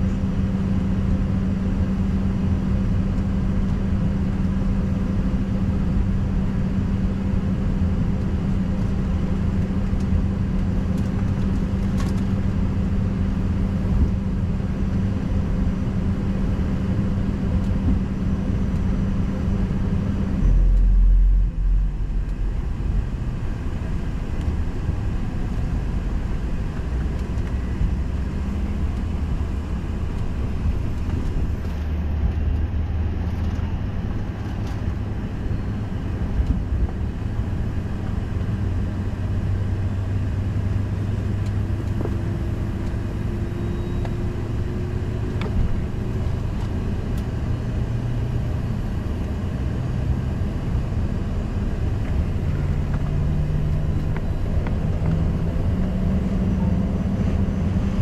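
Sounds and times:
aircraft cabin hum: 0:00.0 - 0:47.8
low rumble: 0:00.0 - 0:58.0.

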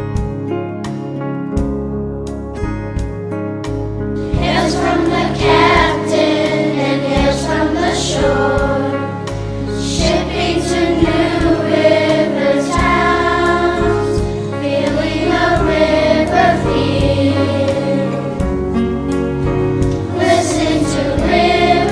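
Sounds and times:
choir singing sustained notes: 0:04.2 - 0:18.5, 0:19.9 - 0:21.9.

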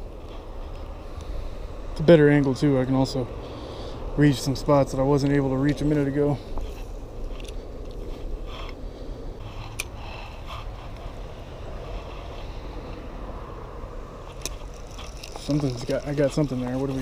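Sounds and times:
faint clicks and rustles: 0:14.2 - 0:17.0.

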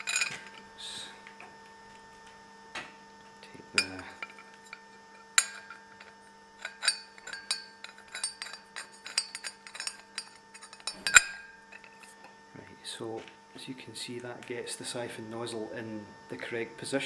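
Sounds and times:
metal clinking and scraping: 0:00.0 - 0:00.7, 0:03.8 - 0:12.2.

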